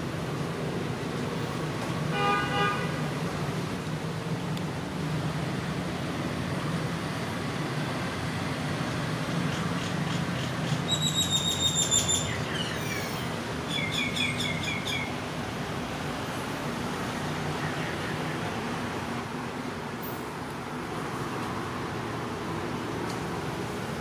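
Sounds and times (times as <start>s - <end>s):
bird chirps and whistles: 10.9s - 13.0s.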